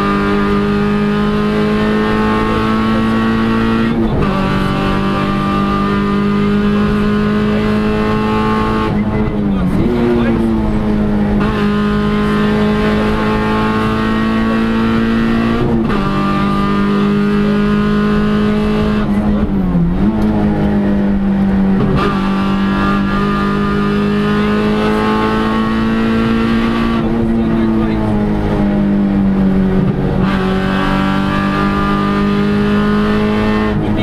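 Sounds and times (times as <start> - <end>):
car engine running hard: 0.0 - 34.0.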